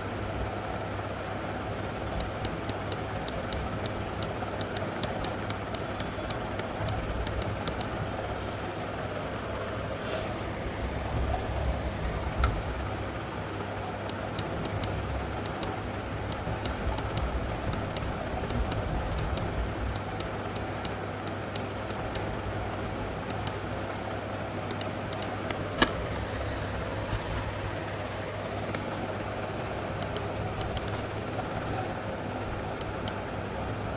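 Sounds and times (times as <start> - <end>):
low background hum: 0.0 - 33.9
computer mouse clicking: 2.2 - 8.0, 14.1 - 22.3, 23.2 - 23.6, 24.7 - 26.3, 30.0 - 31.4, 32.5 - 33.2.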